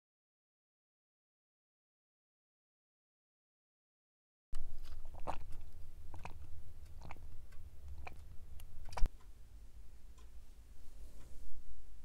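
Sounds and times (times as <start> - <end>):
person swallowing: 4.8 - 7.3.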